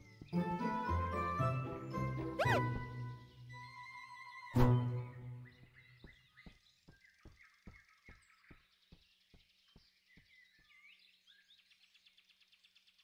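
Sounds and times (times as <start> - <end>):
faint forest ambience: 0.0 - 13.0
small bird chirps: 2.2 - 13.0.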